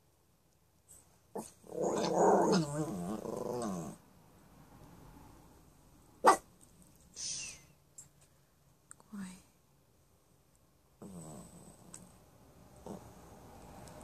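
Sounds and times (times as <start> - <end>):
dog growling: 1.4 - 4.0, 11.0 - 12.2, 12.8 - 13.2
short hiss: 7.1 - 7.7.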